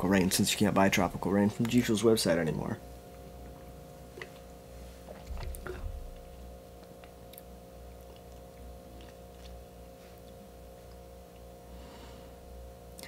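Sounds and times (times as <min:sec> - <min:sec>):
low hum: 0:00.0 - 0:13.0
person swallowing and smacking lips: 0:03.4 - 0:11.5.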